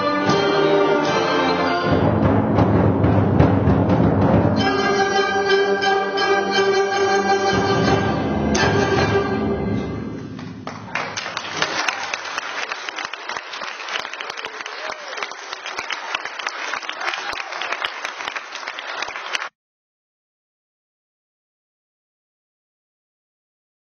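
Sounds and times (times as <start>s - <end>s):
concert band chord: 0.0s - 10.6s
audience applauding: 10.3s - 19.5s.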